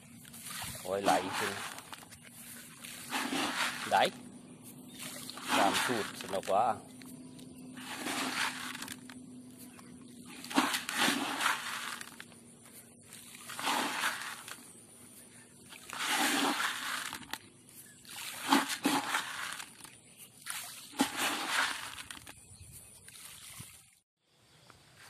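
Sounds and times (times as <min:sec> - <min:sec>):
fertilizer pellets spattering on water: 0:00.4 - 0:02.0, 0:02.8 - 0:04.1, 0:05.0 - 0:06.7, 0:07.8 - 0:09.1, 0:10.4 - 0:12.2, 0:13.3 - 0:14.6, 0:15.8 - 0:17.4, 0:20.5 - 0:22.3.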